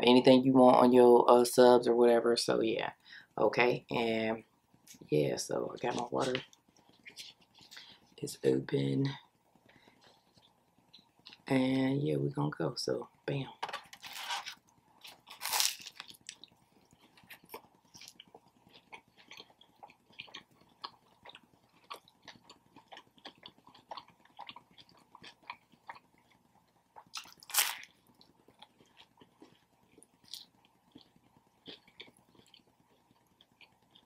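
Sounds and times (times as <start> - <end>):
chewing and biting sandwich: 13.9 - 34.0.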